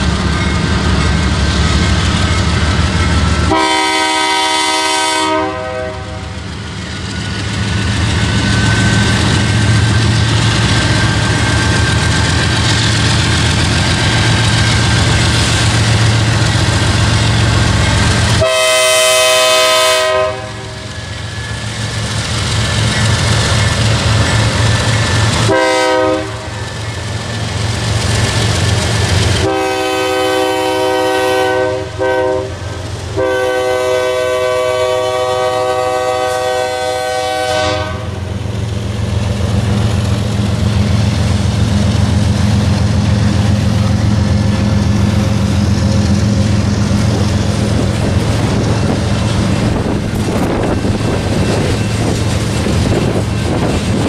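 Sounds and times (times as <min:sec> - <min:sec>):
freight train rumble and clatter: 0:00.0 - 0:54.0
train horn blasts: 0:03.4 - 0:06.4, 0:18.3 - 0:21.0, 0:25.3 - 0:26.6, 0:29.4 - 0:38.2.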